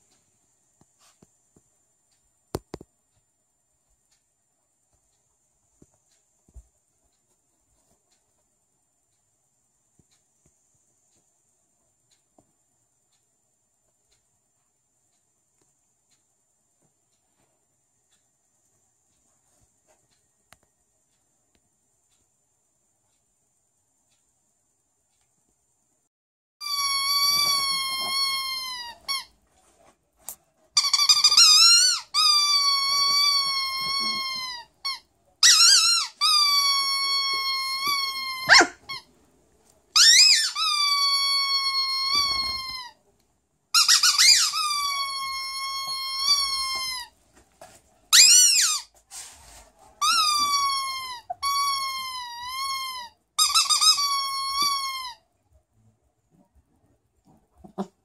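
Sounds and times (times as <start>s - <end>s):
dog whining: 26.6s - 29.3s, 31.5s - 39.0s, 50.0s - 55.2s, 57.6s - 58.0s.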